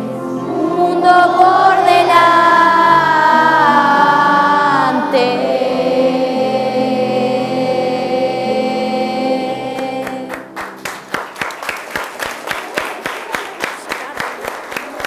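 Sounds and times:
children singing: 0:00.0 - 0:10.6
applause: 0:10.0 - 0:15.0.

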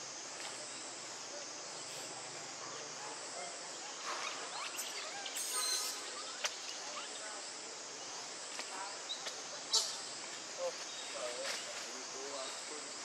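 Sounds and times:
insect hiss: 0:00.0 - 0:13.0
monkeys squeaking: 0:04.4 - 0:06.4
monkey high squeal: 0:04.6 - 0:06.1.

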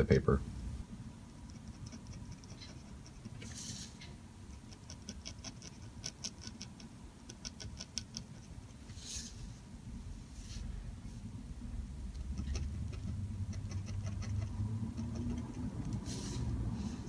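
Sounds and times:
pen scratching on paper: 0:01.5 - 0:03.6, 0:04.5 - 0:08.6, 0:12.3 - 0:16.4.

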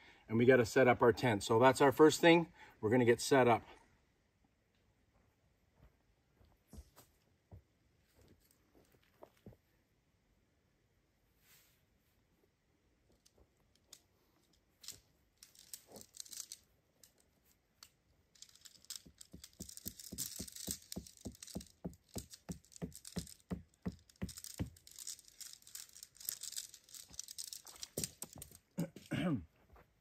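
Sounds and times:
gear rustling: 0:13.0 - 0:29.1.

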